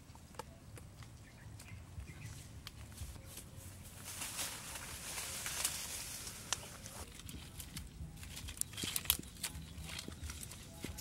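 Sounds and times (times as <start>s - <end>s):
leaves and brush rustling: 1.1s - 11.0s
dry twigs clicking and snapping: 4.8s - 11.0s.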